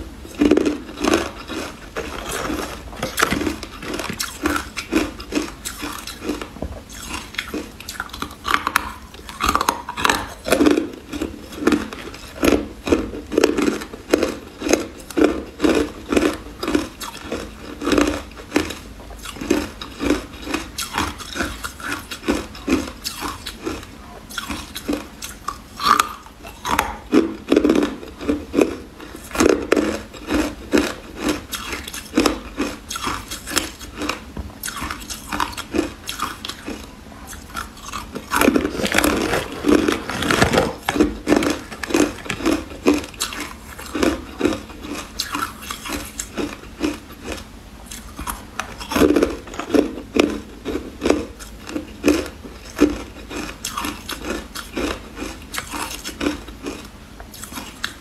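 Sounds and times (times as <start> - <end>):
person crunching ice: 0.4 - 8.0, 37.8 - 47.4.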